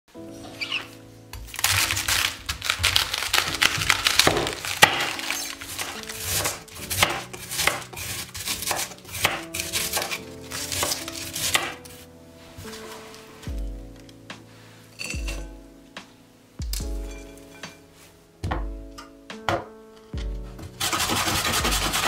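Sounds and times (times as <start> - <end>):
knife shredding cabbage on wooden board: 1.5 - 11.8, 20.8 - 22.0.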